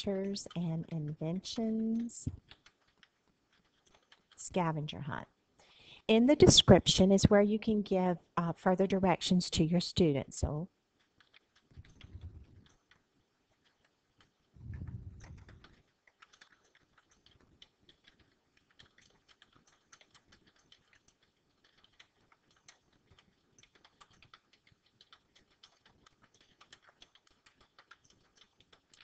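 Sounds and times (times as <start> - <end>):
typing on computer keyboard: 0.0 - 4.6, 9.2 - 29.0
low muffled noise: 14.6 - 15.5.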